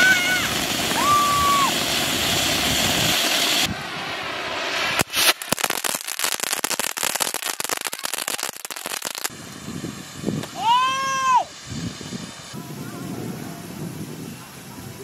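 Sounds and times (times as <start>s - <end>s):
firework fountain hissing: 0.0s - 15.0s
firework rapid crackling: 0.0s - 15.0s
sharp crack: 4.7s - 9.4s.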